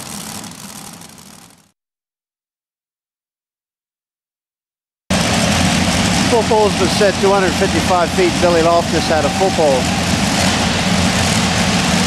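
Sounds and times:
tractor engines idling: 0.0s - 1.6s, 5.1s - 12.0s.

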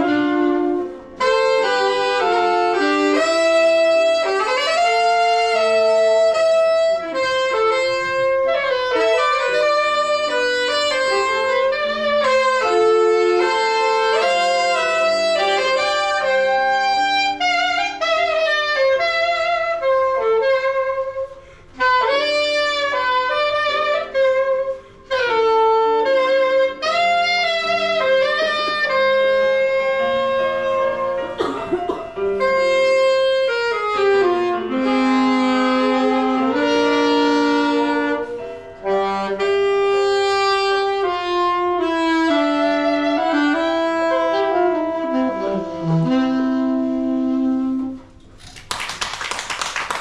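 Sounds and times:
saxophone duet: 0.0s - 49.0s
audience applause: 48.4s - 50.0s.

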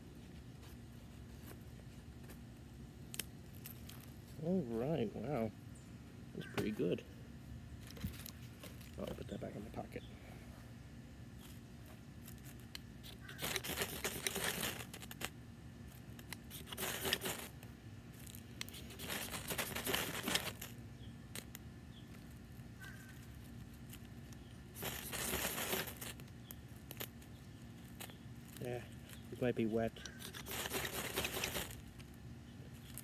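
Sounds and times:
knife scraping ferrocerium rod: 29.9s - 31.7s.

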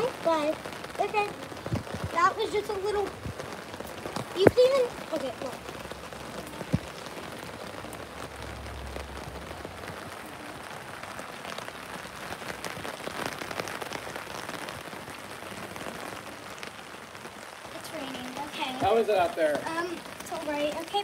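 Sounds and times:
heavy rain on an umbrella: 0.0s - 21.0s
rain on a wet brick patio: 0.0s - 21.0s.

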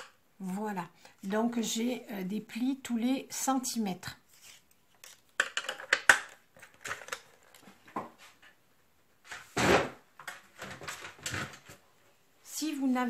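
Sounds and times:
paper rustling: 4.3s - 5.3s.

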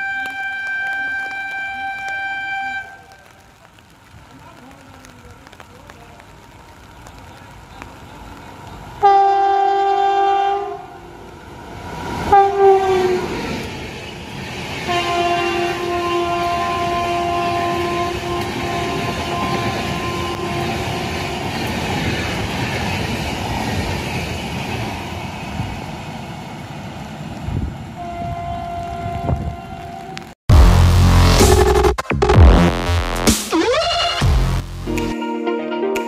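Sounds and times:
locomotive horn blasts: 0.0s - 3.2s, 9.0s - 11.0s, 12.3s - 13.2s, 14.9s - 20.8s, 28.0s - 30.3s
train coaches clattering past: 0.0s - 30.2s.

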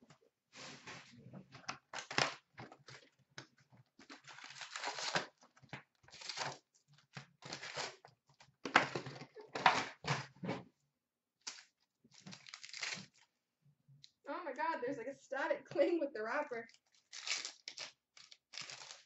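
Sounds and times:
plastic wrap crinkling and tearing: 4.0s - 8.0s, 11.5s - 13.3s, 16.7s - 19.0s
foil packs handled: 12.1s - 13.2s, 16.8s - 19.0s.

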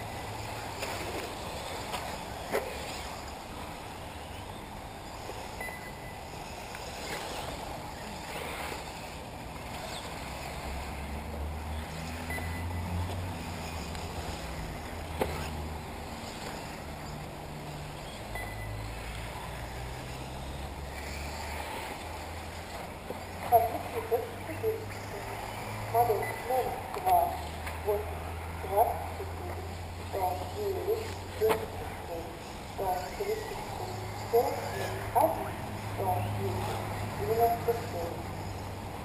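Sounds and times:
rc car motor whines: 0.0s - 39.0s
steady noisy background: 0.0s - 39.0s
short high beeps: 5.6s - 6.2s, 12.2s - 13.0s, 18.3s - 18.9s, 26.2s - 26.6s.

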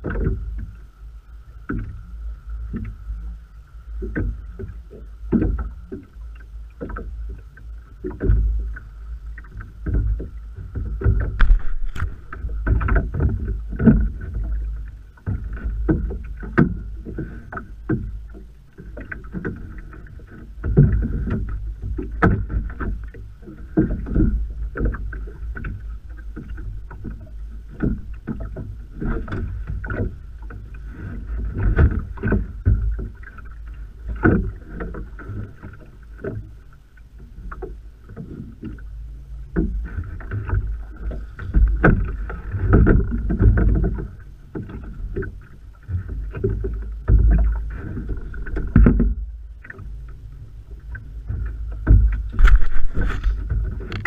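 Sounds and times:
knocks and splashes: 0.0s - 0.7s, 4.0s - 6.2s, 6.8s - 36.6s, 39.5s - 50.2s, 50.8s - 54.0s
waves slapping boat hull: 0.0s - 54.0s
wind buffeting microphone: 51.8s - 54.0s.

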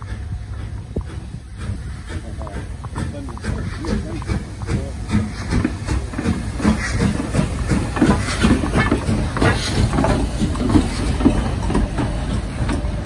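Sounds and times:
steam hissing: 0.0s - 13.0s
steam locomotive exhaust chuffing: 0.0s - 13.0s
wheels rumbling on rails: 0.0s - 13.0s.

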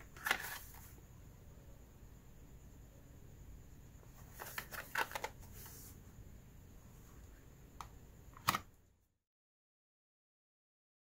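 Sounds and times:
blister pack crackling and rustling: 0.0s - 0.9s.

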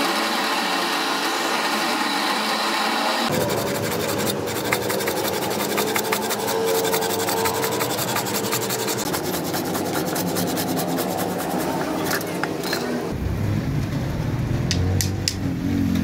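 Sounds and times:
hand saw cutting wood: 0.0s - 12.7s.

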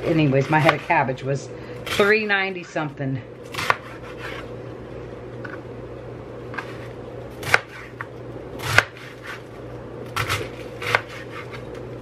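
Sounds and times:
knife cutting cabbage on board: 0.2s - 1.0s, 3.5s - 4.5s, 6.5s - 9.5s, 10.1s - 11.8s.

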